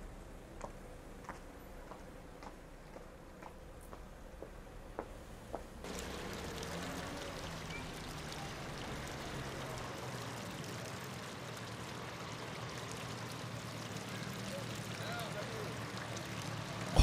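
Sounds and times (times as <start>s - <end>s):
fountain water splashing: 5.8s - 17.0s.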